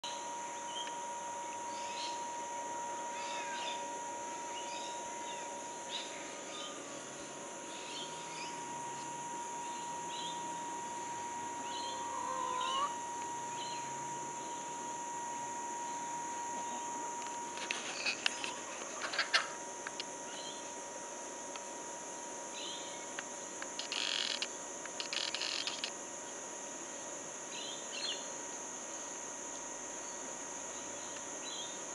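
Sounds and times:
high insect drone: 0:00.0 - 0:31.9
steady thin tone: 0:00.1 - 0:22.0.

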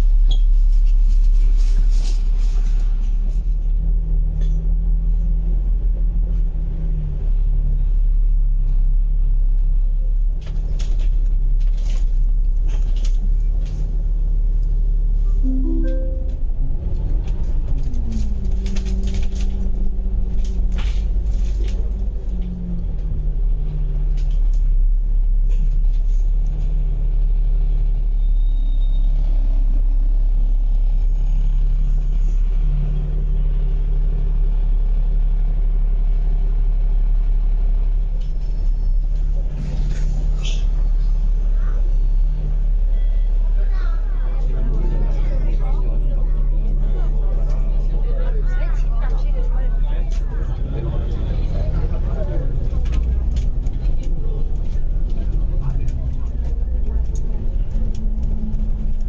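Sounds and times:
bus engine rumble: 0:00.0 - 0:59.0
rattling clicks from bus body: 0:17.2 - 0:23.1.

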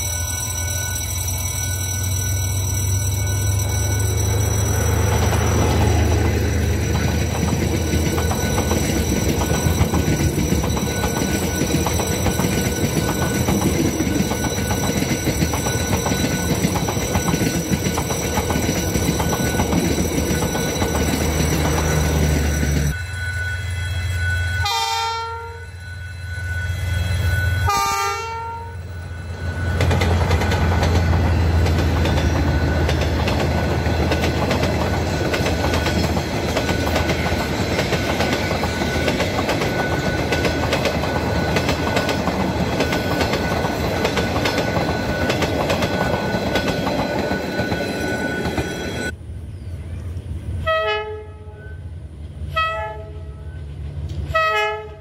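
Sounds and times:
wheels rushing on rails: 0:00.0 - 0:55.0
train horn blast: 0:23.0 - 0:29.2, 0:50.6 - 0:53.6, 0:54.2 - 0:55.0.

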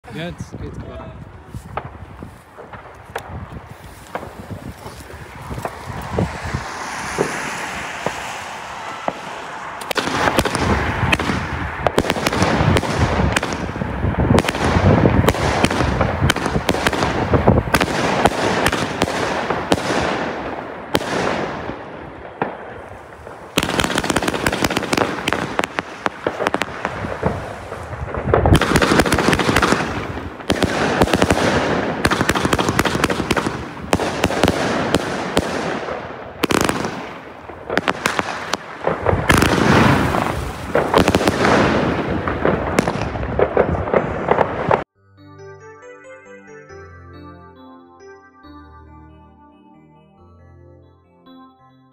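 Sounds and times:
firework stars crackling: 0:00.1 - 0:44.9
firework fizzing: 0:05.6 - 0:12.7, 0:38.0 - 0:42.8
firework launches popping: 0:37.8 - 0:44.8.

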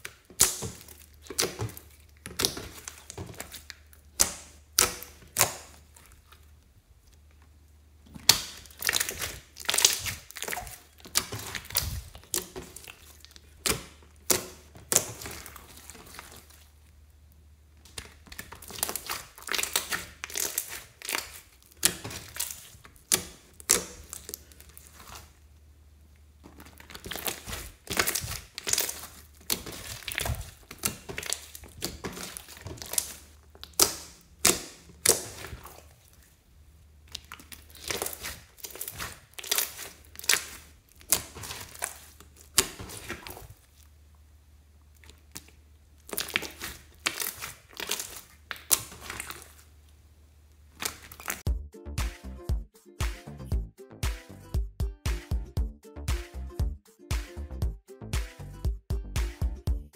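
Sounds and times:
slime squelching: 0:00.0 - 0:51.5
trapped air popping in slime: 0:08.1 - 0:16.4, 0:17.8 - 0:25.2.

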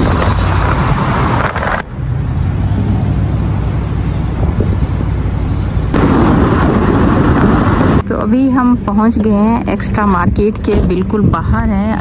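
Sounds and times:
steady low car rumble: 0:00.0 - 0:12.0
loud rushing road hiss: 0:02.4 - 0:08.0.

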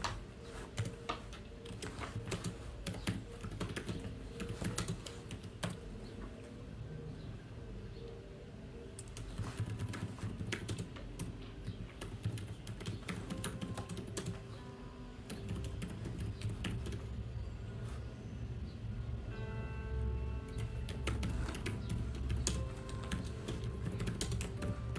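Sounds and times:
keyboard typing: 0:00.0 - 0:06.2, 0:08.9 - 0:14.6, 0:15.2 - 0:17.2, 0:20.5 - 0:24.9
quiet music: 0:00.0 - 0:24.9.

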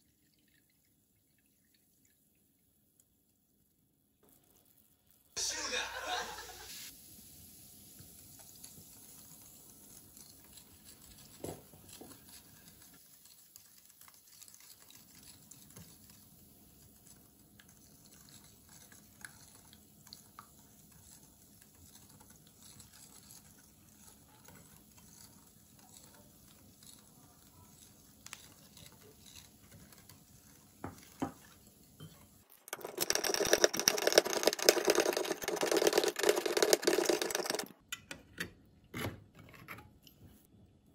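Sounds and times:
whisk clicking in ceramic bowl: 0:32.7 - 0:37.7.

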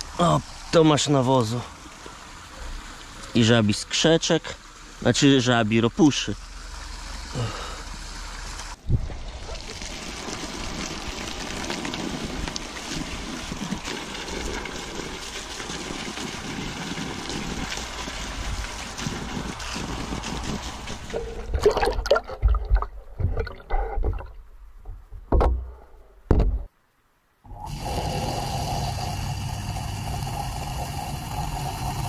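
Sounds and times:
hose spraying water: 0:00.0 - 0:21.9, 0:27.5 - 0:32.0
knocks and thumps: 0:21.1 - 0:26.7.

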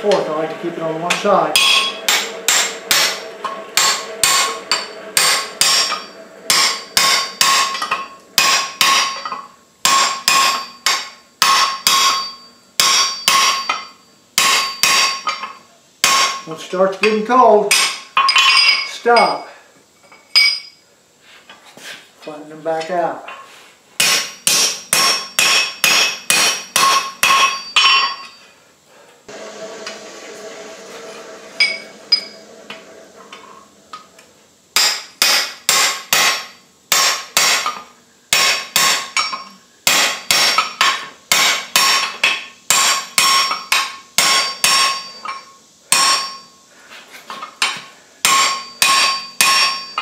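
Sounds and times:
hammer striking steel on anvil: 0:01.0 - 0:19.4, 0:24.0 - 0:28.4, 0:31.6 - 0:34.0, 0:34.8 - 0:46.5, 0:47.6 - 0:50.0.

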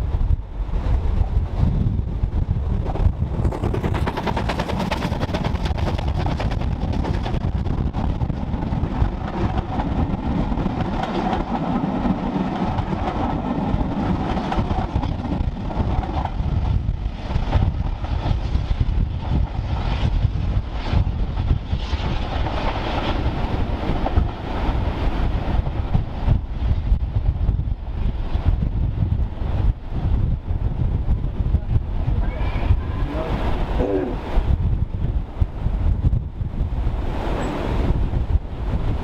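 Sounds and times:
train coaches rumbling on rails: 0:00.0 - 0:39.0
steam locomotive working: 0:02.2 - 0:27.3.

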